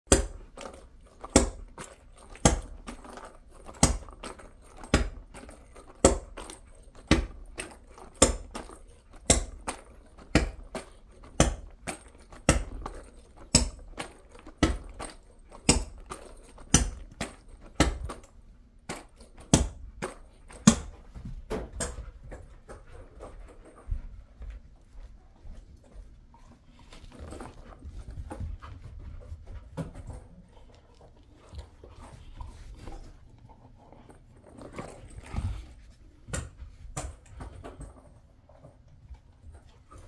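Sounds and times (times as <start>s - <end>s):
rubber ball bouncing on floor: 0.1s - 22.5s.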